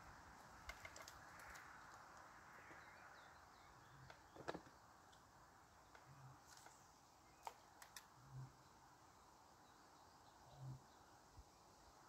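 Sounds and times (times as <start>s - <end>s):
faint clicks: 7.4s - 8.1s.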